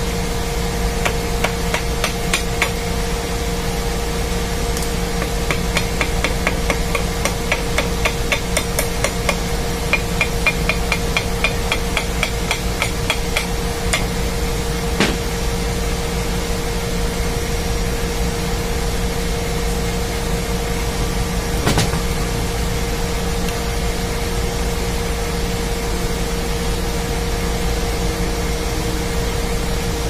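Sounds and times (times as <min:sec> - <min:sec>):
machinery hum: 0:00.0 - 0:30.0
heavy metal knock: 0:15.0 - 0:15.3, 0:21.6 - 0:22.2.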